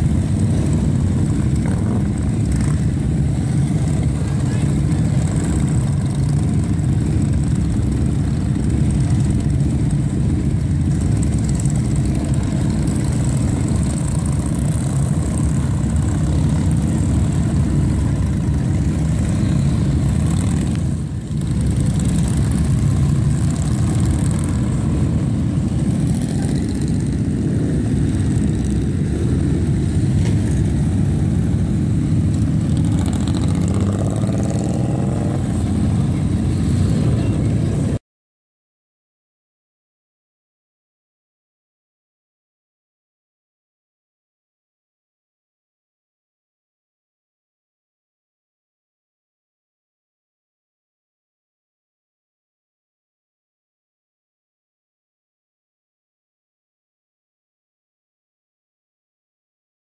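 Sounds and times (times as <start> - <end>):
motorcycle engines rumbling: 0.0 - 38.0.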